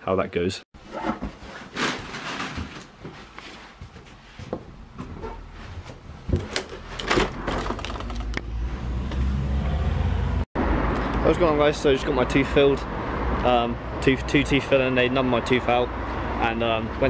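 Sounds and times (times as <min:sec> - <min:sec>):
knocks and rustles of handling: 0:00.8 - 0:08.4.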